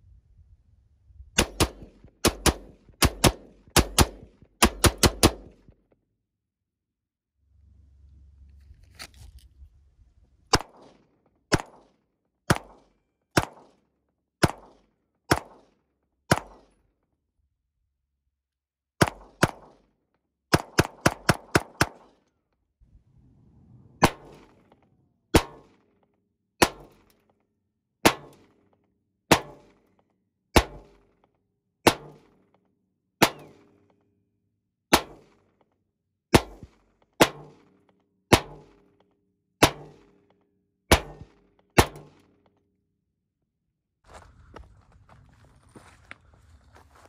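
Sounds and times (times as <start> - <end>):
gunshots: 1.4 - 5.8, 10.5 - 13.8, 14.4 - 16.8, 19.0 - 19.9, 20.5 - 22.2, 24.0 - 25.9, 29.3 - 29.8, 33.2 - 33.8, 40.9 - 42.3.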